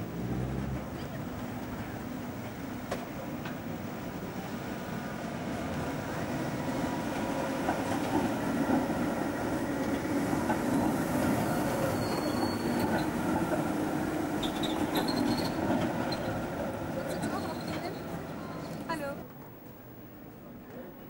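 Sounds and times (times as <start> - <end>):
tram wheels running on rails: 0.0 - 21.0
high wheel squeals: 11.2 - 13.5, 14.4 - 16.4, 17.1 - 18.9.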